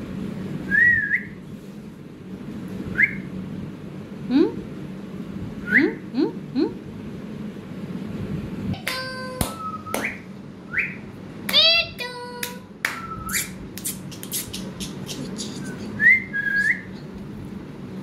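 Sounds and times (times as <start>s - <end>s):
sharp bird clicks: 12.9s - 15.9s
parakeet whistles and squeaky calls: 12.9s - 17.1s.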